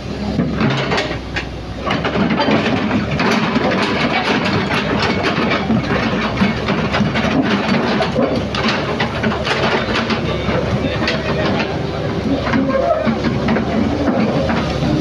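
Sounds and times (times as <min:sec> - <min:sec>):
excavator diesel engine running: 0:00.0 - 0:15.0
steel tracks rattling: 0:00.0 - 0:15.0.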